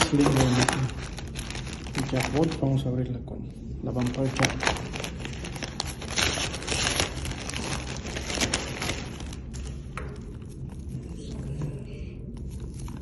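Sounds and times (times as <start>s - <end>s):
plastic bag being cut and torn: 0.0s - 2.6s, 4.0s - 9.5s
plastic bag crinkling: 0.0s - 3.1s, 3.8s - 11.1s.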